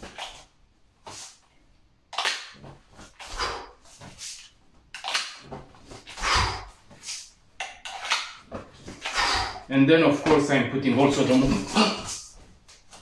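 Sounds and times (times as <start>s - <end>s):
knife drawn from waistband: 5.9s - 7.3s.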